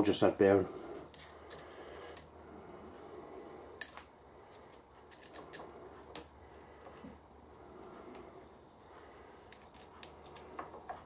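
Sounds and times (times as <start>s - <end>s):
metal parts clicking and clinking: 1.1s - 2.5s, 3.8s - 6.6s, 9.4s - 11.0s.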